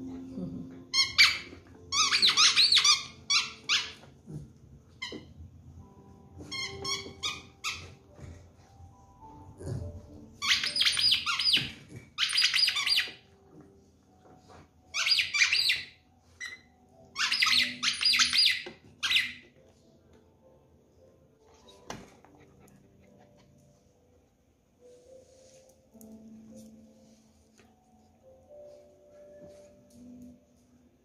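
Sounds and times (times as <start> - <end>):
squeaky toy squeaks: 0.3 - 4.3, 6.0 - 8.2, 10.4 - 13.3, 14.8 - 19.6.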